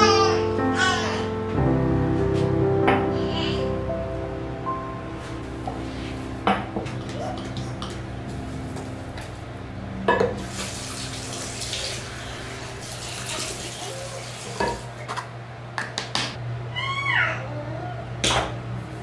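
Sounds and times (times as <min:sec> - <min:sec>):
water splashing in sink: 0:10.4 - 0:15.1.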